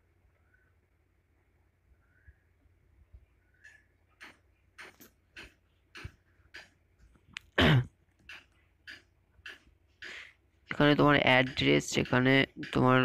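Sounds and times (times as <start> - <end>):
breathy throat and mouth noises: 7.2 - 10.4
person clearing throat: 7.5 - 8.0.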